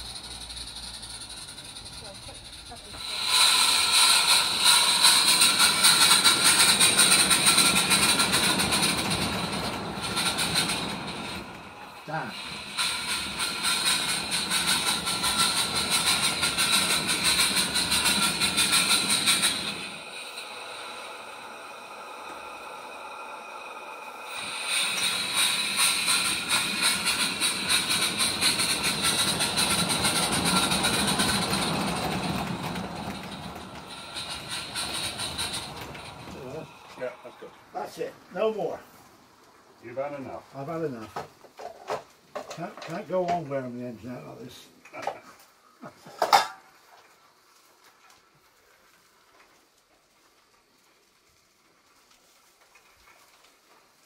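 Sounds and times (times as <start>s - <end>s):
wagon wheels clicking on track: 0.0s - 20.7s, 24.3s - 36.8s
steam locomotive hissing: 0.0s - 54.0s.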